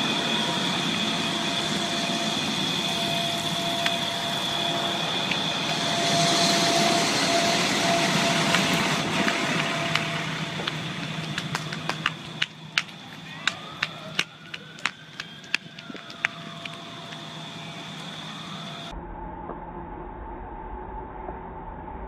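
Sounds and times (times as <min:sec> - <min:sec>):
vehicle engines running: 0:00.0 - 0:18.9.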